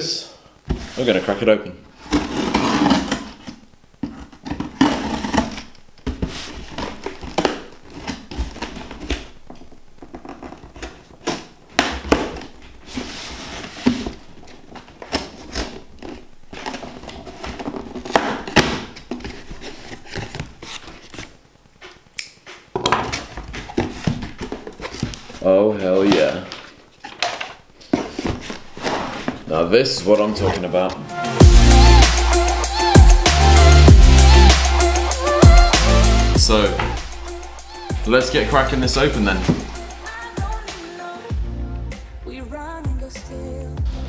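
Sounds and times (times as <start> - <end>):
cardboard and packing rustling: 0.6 - 31.0, 36.4 - 40.2
scrapes: 2.0 - 9.4, 10.0 - 31.0.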